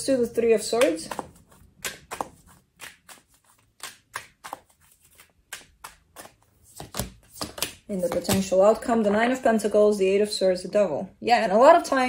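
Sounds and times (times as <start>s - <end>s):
cards being shuffled: 0.5s - 8.6s.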